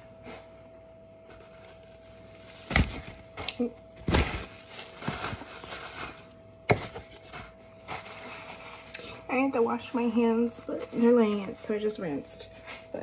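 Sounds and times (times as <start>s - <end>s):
faint steady hum: 0.0s - 13.0s
rustling and clatter: 4.1s - 8.9s.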